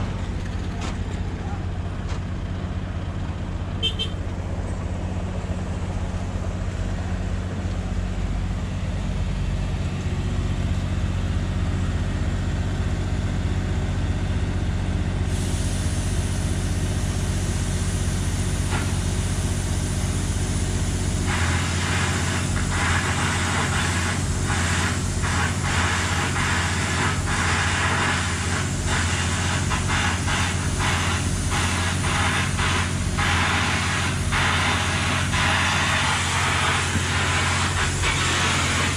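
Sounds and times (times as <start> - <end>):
excavator diesel engine running: 0.0 - 38.9
hydraulic hiss: 15.3 - 38.9.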